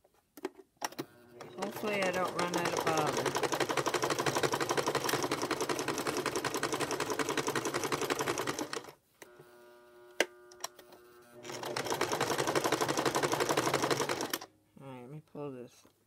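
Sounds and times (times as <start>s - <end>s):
sewing machine stitching: 0.9s - 9.0s, 10.5s - 14.5s.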